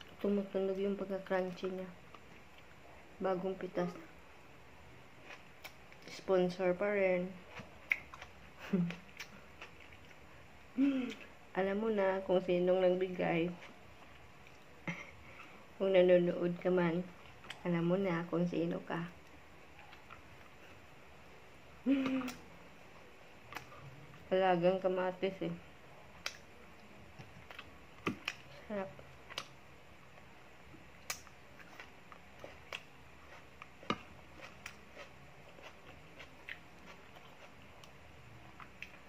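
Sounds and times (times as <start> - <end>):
chewing clicks and smacks: 7.5 - 10.2
woman humming while chewing: 8.6 - 9.3, 10.8 - 11.3, 21.8 - 22.5.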